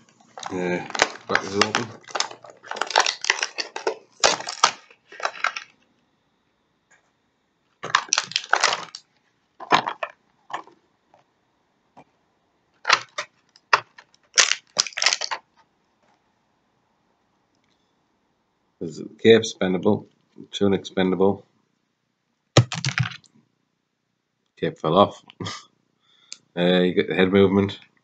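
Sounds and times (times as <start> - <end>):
plastic blister packaging crackling: 0.0 - 5.8, 7.8 - 10.8, 12.8 - 15.5, 22.6 - 23.2.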